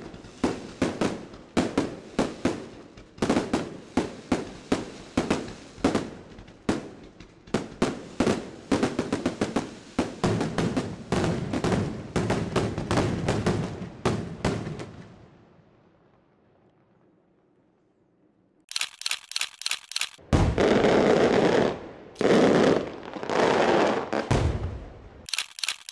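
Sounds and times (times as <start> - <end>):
firework crackle: 0.0 - 11.8.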